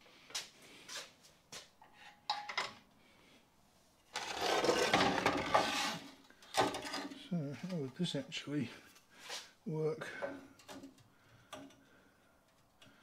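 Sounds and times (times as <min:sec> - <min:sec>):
steel bracket scraping on table: 0:04.1 - 0:07.1.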